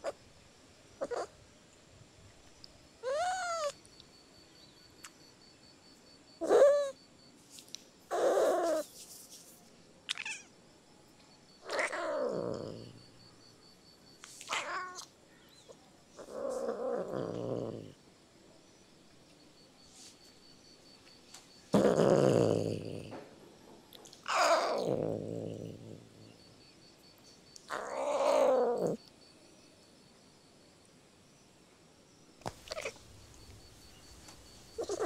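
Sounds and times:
cat meowing: 3.0s - 3.8s, 10.1s - 10.5s, 11.6s - 12.9s, 14.5s - 15.1s, 24.3s - 26.0s, 27.7s - 29.0s, 32.5s - 33.0s, 34.8s - 35.0s.

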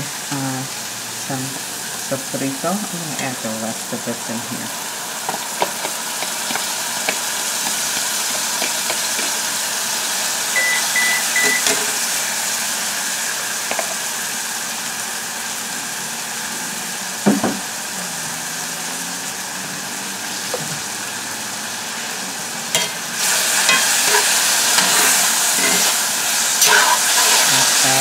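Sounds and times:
vegetables sizzling in a skillet: 0.0s - 28.0s
spatula scraping a pan: 5.3s - 9.6s, 22.7s - 28.0s
knock: 17.2s - 17.6s.

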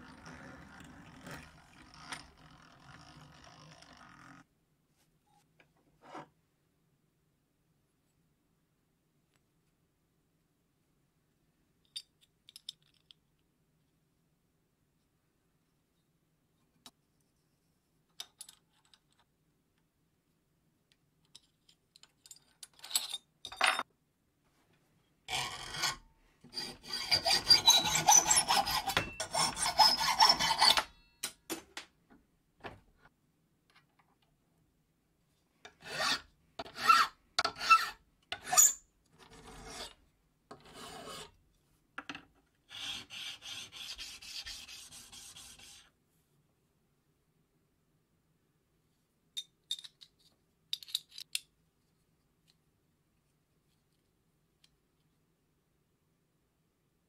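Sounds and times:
hacksaw cutting steel: 25.3s - 31.0s
rasping strokes on metal: 25.3s - 31.0s, 35.8s - 40.0s, 42.7s - 45.9s.

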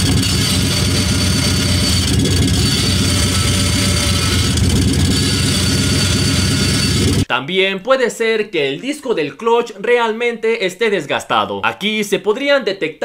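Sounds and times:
car engine running: 0.0s - 7.3s
metallic noise from clutch: 0.0s - 7.3s.

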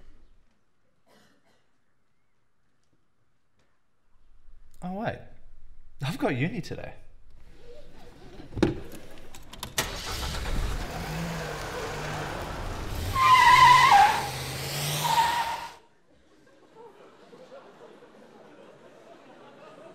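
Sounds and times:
car engine starting and running: 8.2s - 15.8s
tyre squeal: 13.0s - 15.8s.

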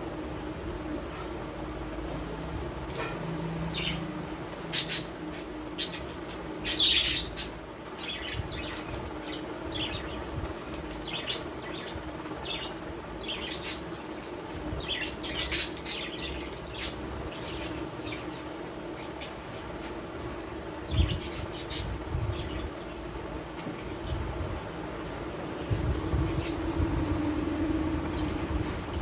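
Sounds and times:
steady low hum: 0.0s - 29.0s
parrots chirping and squawking: 4.6s - 24.3s.

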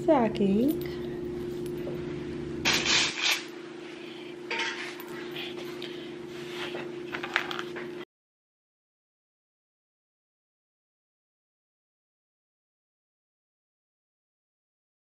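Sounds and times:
steady low hum: 0.0s - 8.0s.

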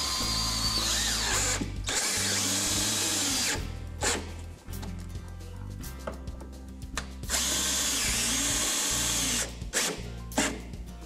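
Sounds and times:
cordless drill driving screws: 0.0s - 4.3s, 7.3s - 10.6s.

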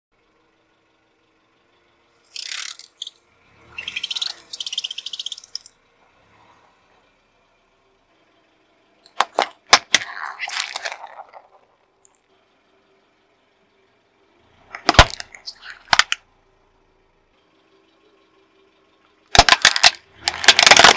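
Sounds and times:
sharp crack of plastic: 9.1s - 11.5s, 14.8s - 16.2s, 19.3s - 20.9s.

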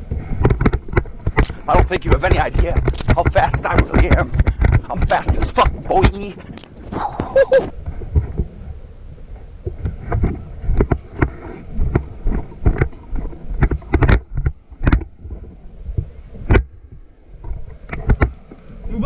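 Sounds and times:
footfalls thumping: 0.0s - 8.5s
gear jostling: 0.0s - 8.6s
wind rushing over microphone: 0.0s - 19.0s.

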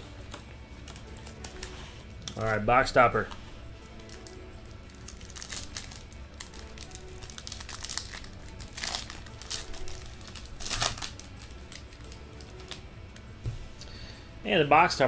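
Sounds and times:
foil wrapper crinkling: 0.8s - 2.6s, 3.9s - 12.9s.

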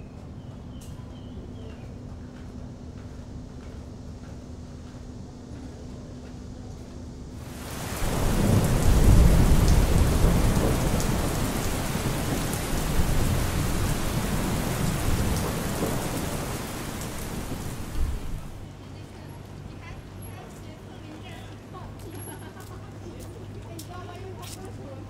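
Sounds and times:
deep rumble of thunder: 7.4s - 18.6s
heavy rain pouring: 7.4s - 18.6s.

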